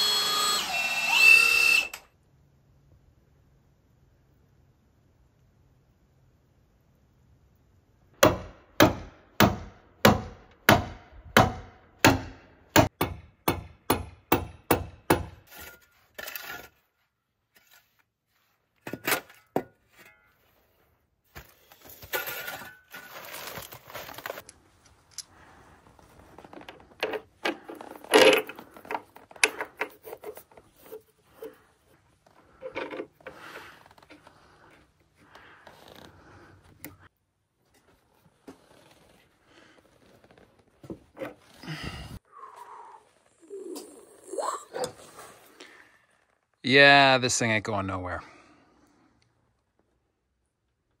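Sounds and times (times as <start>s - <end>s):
shovel scraping: 15.4s - 24.5s.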